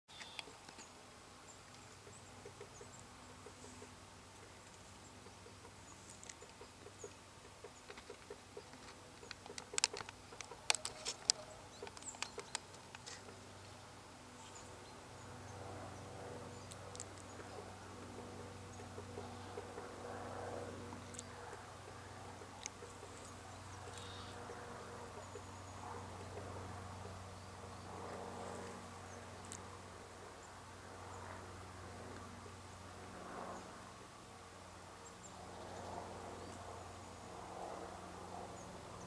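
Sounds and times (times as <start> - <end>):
woodpecker tapping on wood: 5.2 - 13.4.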